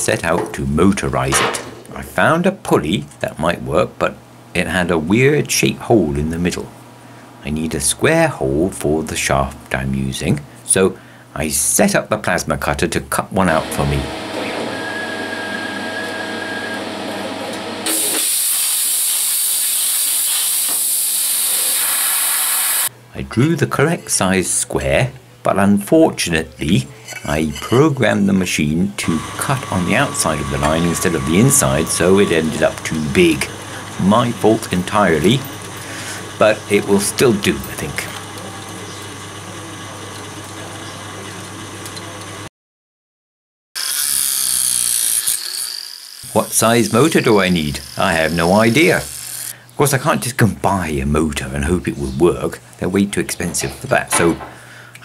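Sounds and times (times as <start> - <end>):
electric machine humming: 13.5 - 20.0, 28.6 - 42.5, 43.8 - 49.7
loud hissy machine sound: 13.6 - 22.9, 29.0 - 42.5, 43.8 - 49.6
plasma cutter hissing: 17.9 - 22.9, 46.2 - 49.6
steady hum: 22.9 - 42.4.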